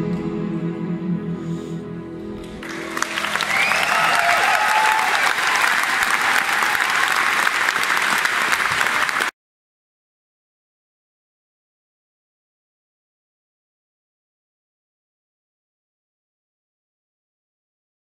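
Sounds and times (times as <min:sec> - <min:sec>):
orchestra sustained chord: 0:00.0 - 0:03.8
audience applause: 0:02.6 - 0:09.3.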